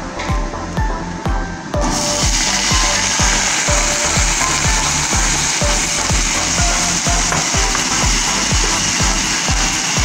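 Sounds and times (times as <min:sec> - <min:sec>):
background music with beat: 0:00.0 - 0:10.0
vegetables sizzling in a wok: 0:02.0 - 0:10.0.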